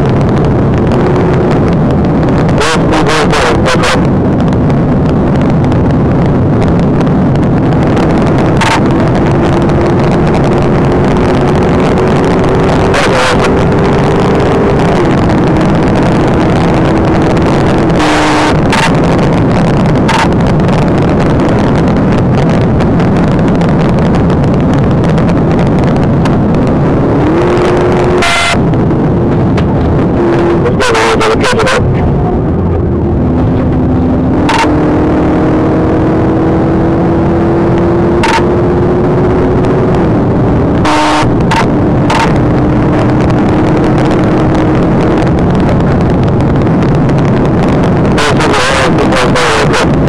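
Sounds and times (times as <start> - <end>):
car engine roaring at speed: 0.0 - 50.0.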